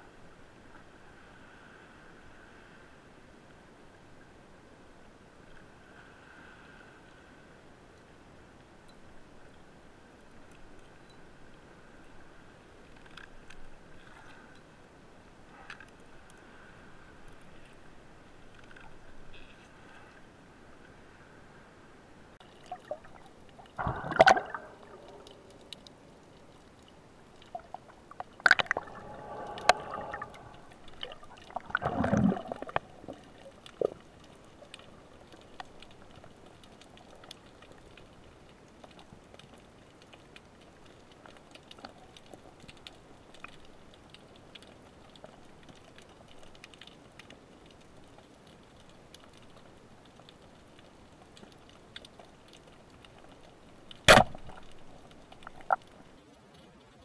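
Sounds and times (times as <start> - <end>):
underwater gurgling and sloshing: 0.0 - 56.3
steady hiss: 4.6 - 36.6
faint clicks: 12.8 - 14.7, 15.5 - 19.8, 22.4 - 57.0.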